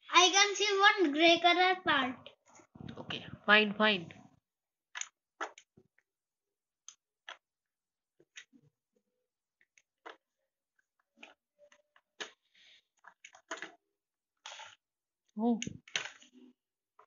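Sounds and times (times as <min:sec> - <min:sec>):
small plastic clicks: 0:04.9 - 0:06.1, 0:15.4 - 0:16.5.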